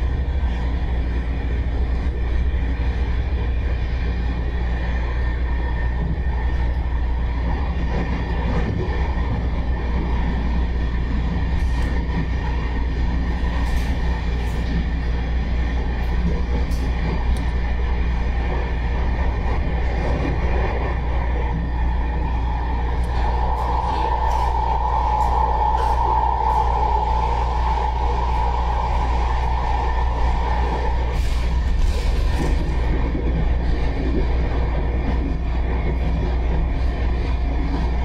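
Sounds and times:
constant tonal hum: 0:00.0 - 0:38.0
train wheels rumbling on rail: 0:00.0 - 0:38.0.

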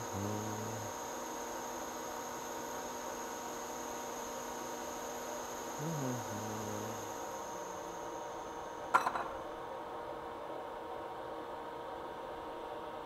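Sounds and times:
man humming low: 0:00.0 - 0:01.0, 0:05.7 - 0:07.2
faint electrical whine: 0:00.0 - 0:13.0.

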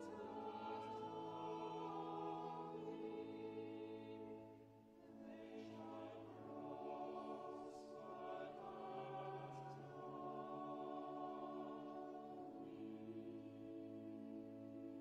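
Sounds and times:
choir singing held chords: 0:00.0 - 0:15.0.

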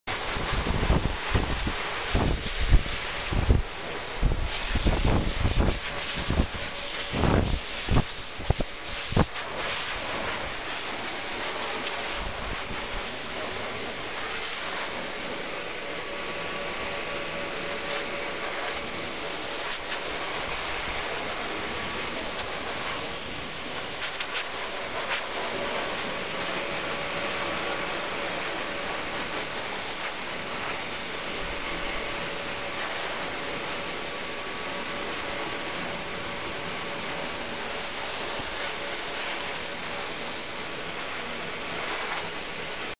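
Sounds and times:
blow dryer hiss of air: 0:00.1 - 0:42.9
wind buffeting microphone: 0:00.4 - 0:09.3.

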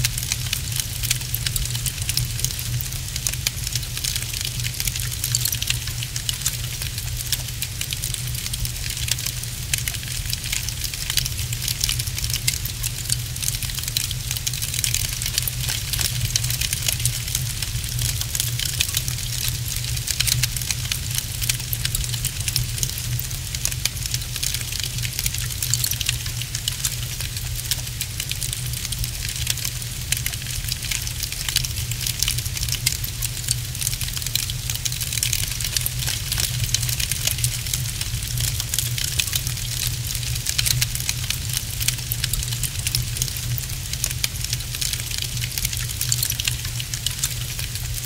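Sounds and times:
wood fire crackling: 0:00.0 - 0:48.0.

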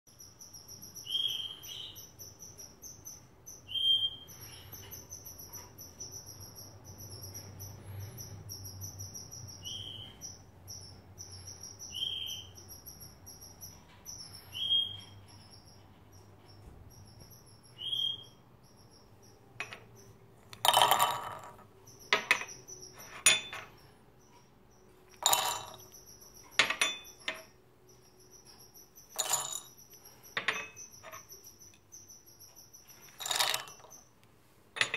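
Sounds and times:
high-pitched chirping trill: 0:00.1 - 0:20.2
nuts clattering into glass bowl: 0:20.5 - 0:23.7, 0:25.1 - 0:26.0, 0:29.1 - 0:29.8, 0:33.1 - 0:34.0.

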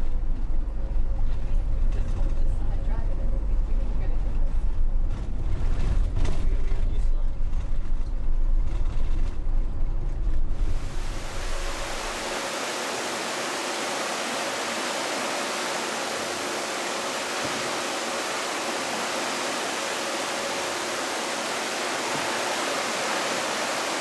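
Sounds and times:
sea water churning: 0:10.6 - 0:24.0.

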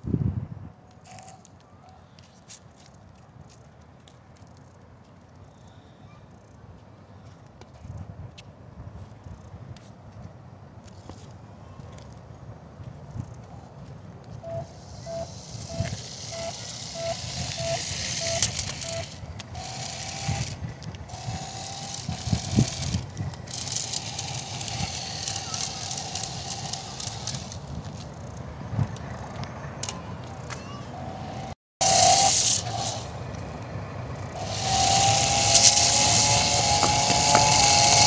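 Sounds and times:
held beeping tones: 0:14.4 - 0:19.2
short electronic beeps: 0:14.4 - 0:19.2
toy car electric motor hiss: 0:14.4 - 0:27.8, 0:30.6 - 0:33.4, 0:34.2 - 0:38.0.

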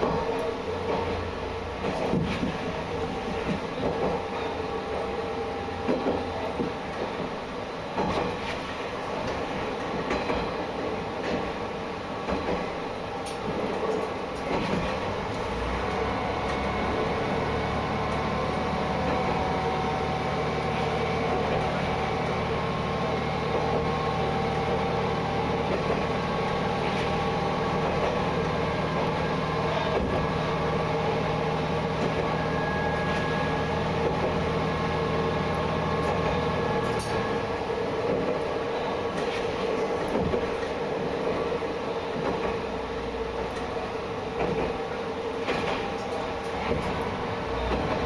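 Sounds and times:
moving train rumble: 0:00.0 - 0:48.0
railcar diesel engine running: 0:00.0 - 0:48.0.

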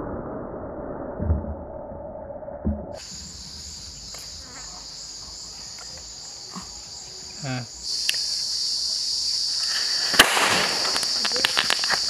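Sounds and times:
insects chirping: 0:03.0 - 0:12.0.

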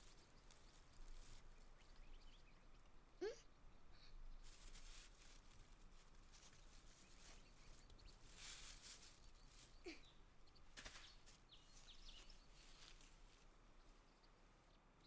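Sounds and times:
rustling of leaves and stones: 0:00.0 - 0:03.0, 0:03.9 - 0:14.2.

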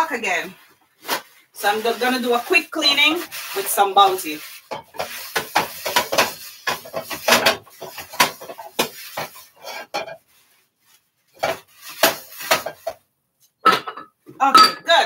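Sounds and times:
wok clanking and scraping: 0:03.2 - 0:10.3, 0:11.4 - 0:13.0, 0:13.6 - 0:15.0.

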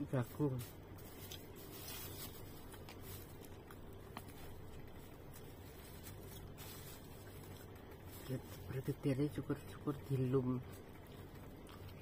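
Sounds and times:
closed-mouth chewing: 0:10.6 - 0:12.0.

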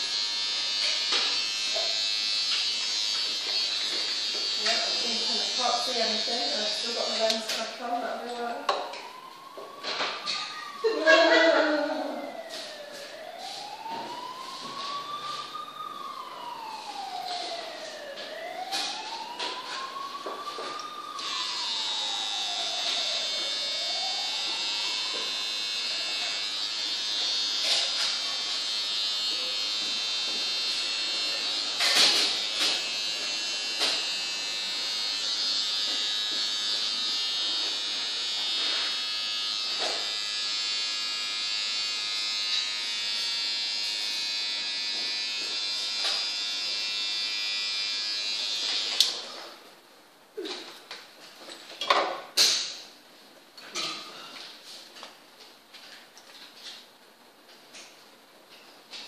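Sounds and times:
small electric motor whirring: 0:00.0 - 0:07.5.

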